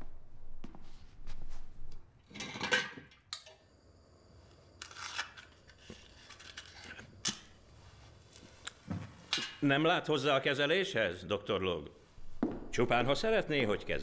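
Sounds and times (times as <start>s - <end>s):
sharp ringing clink: 3.3s - 3.8s.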